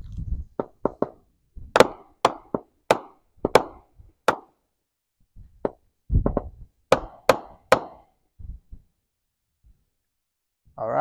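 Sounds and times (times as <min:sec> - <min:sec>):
firework cake bangs and pops: 0:00.6 - 0:04.5.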